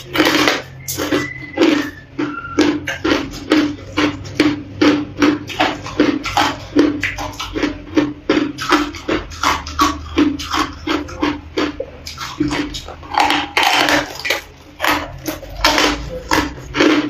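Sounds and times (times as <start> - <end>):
ice crunching while chewing: 0.0 - 17.0.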